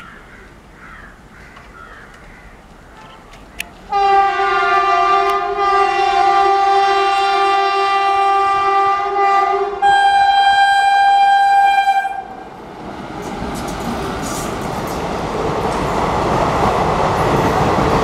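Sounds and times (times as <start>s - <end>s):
passing train rolling: 2.2s - 18.0s
locomotive horn blasts: 3.9s - 12.4s.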